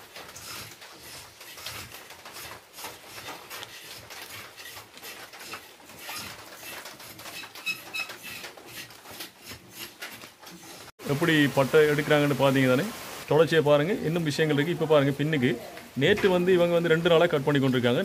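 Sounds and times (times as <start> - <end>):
knife scraping bark: 0.0 - 10.9.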